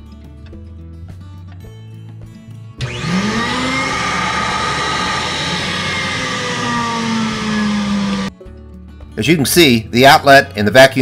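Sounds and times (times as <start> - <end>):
vacuum motor whine: 2.8 - 8.3.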